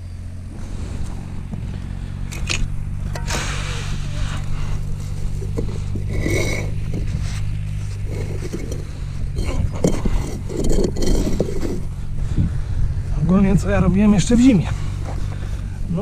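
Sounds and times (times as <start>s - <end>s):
steady low hum: 0.0s - 16.0s
concrete block scraping and knocking: 2.5s - 12.1s.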